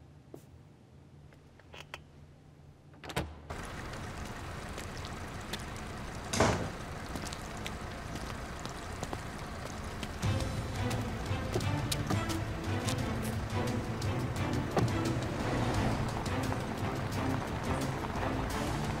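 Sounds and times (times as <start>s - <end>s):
outdoor background hiss: 0.0s - 19.0s
heavy wooden door shutting: 6.3s - 6.8s.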